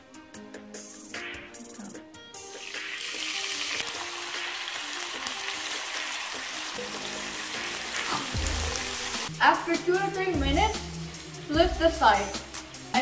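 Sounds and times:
skewers sizzling in hot oil: 2.4s - 13.0s.

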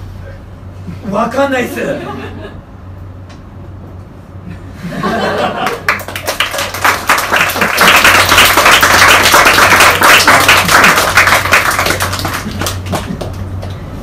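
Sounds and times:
audience applauding: 5.3s - 13.7s.

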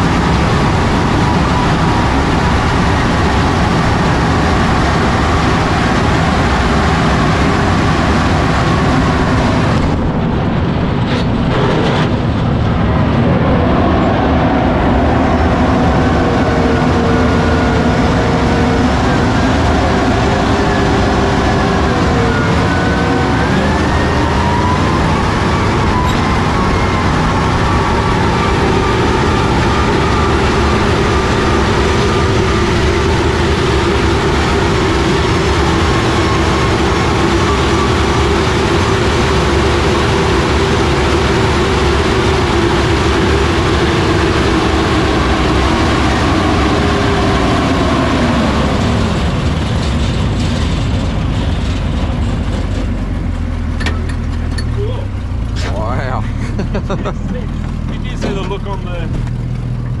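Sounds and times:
mechanical whine: 0.0s - 56.2s
tracked vehicle engine and tracks: 0.0s - 60.0s.

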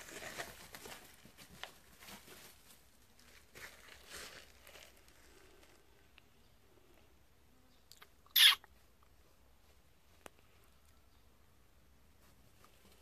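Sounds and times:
rustling of dry leaves: 0.0s - 6.1s.

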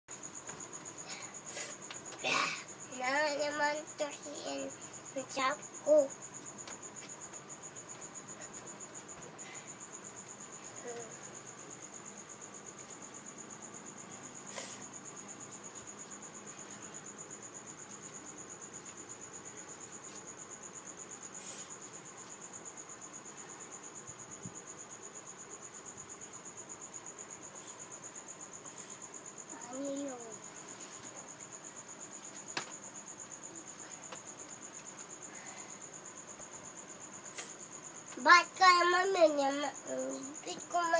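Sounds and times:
cricket trilling: 0.1s - 40.9s
child's vocal sound: 1.0s - 6.1s, 10.7s - 11.2s, 38.2s - 40.9s.

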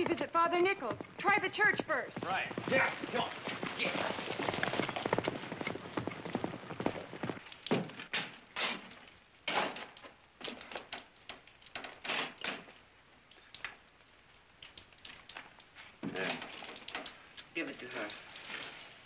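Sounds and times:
horses' hooves clattering: 0.0s - 12.8s.

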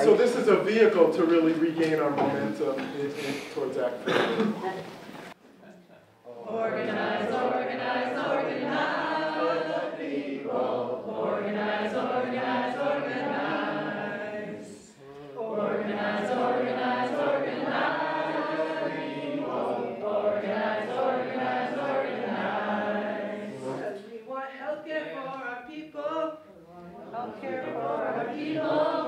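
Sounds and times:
group singing protest chant: 6.4s - 24.3s, 26.9s - 29.0s.

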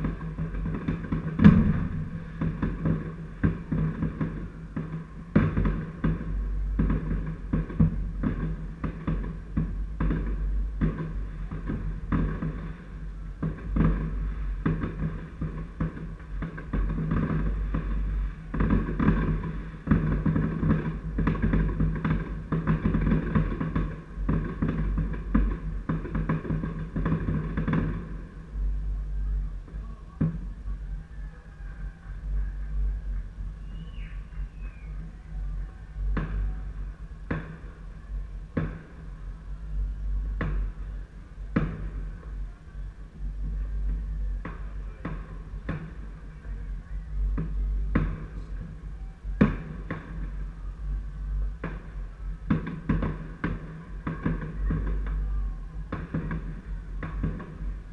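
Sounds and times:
distant fireworks bangs: 0.0s - 57.9s
low rumble: 0.0s - 57.9s.

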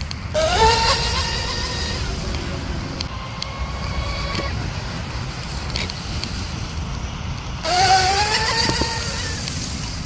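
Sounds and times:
rc boat electric motors whining: 0.0s - 5.1s, 7.5s - 10.0s
wind rumble on microphone: 0.0s - 10.0s.

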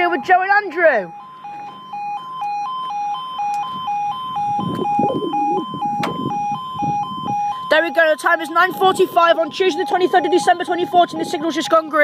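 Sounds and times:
two-tone warning alarm: 0.0s - 12.0s
low rumble: 3.8s - 7.6s.

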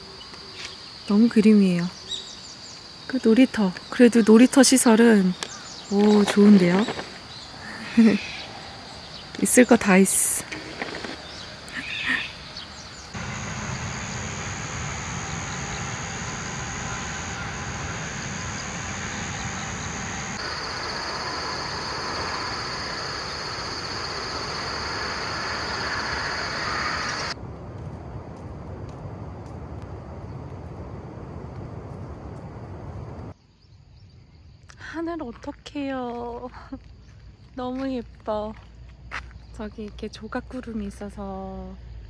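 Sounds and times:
high-pitched whine: 13.2s - 27.4s.

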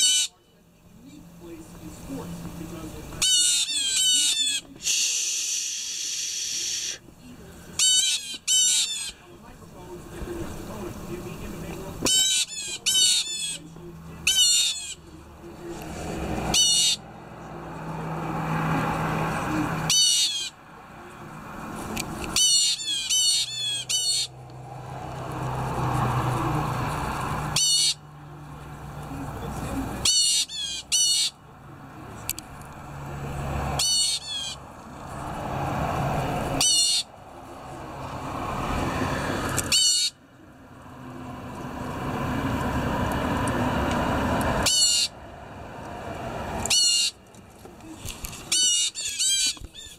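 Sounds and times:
blue jay calling: 0.0s - 0.4s, 3.1s - 7.0s, 7.7s - 9.3s, 12.0s - 15.2s, 16.5s - 17.1s, 19.9s - 20.6s, 22.3s - 24.5s, 27.5s - 28.1s, 30.0s - 31.4s, 33.7s - 34.6s, 36.6s - 37.2s, 39.6s - 40.2s, 44.6s - 45.2s, 46.6s - 47.3s, 48.5s - 49.9s
rushing background noise: 0.0s - 49.9s.

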